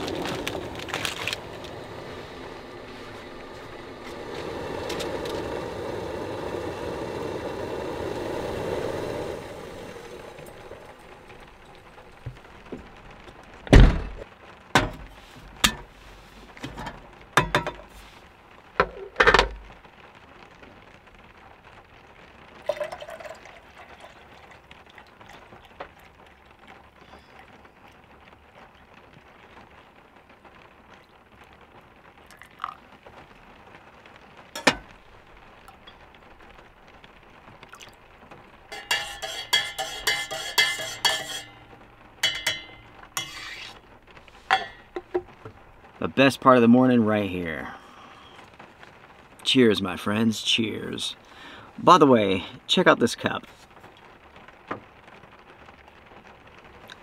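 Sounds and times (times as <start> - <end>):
water pouring into mug: 0.0 - 12.6, 22.6 - 26.3, 32.2 - 32.8, 37.6 - 38.0, 38.7 - 43.8
sharp knocks of kettle and stove: 13.7 - 15.9, 16.6 - 17.9, 18.8 - 19.6, 34.6 - 35.0, 38.7 - 43.8, 44.4 - 45.6
metal spoon clinking in mug: 38.7 - 41.6, 42.2 - 43.7, 44.5 - 45.0.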